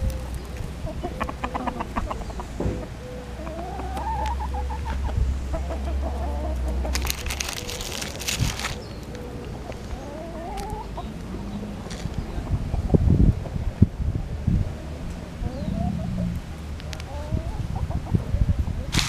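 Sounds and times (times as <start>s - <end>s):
chickens clucking: 0.0s - 19.0s
rustling noise: 6.9s - 9.0s, 11.9s - 12.2s
patter of clicks: 6.9s - 10.0s.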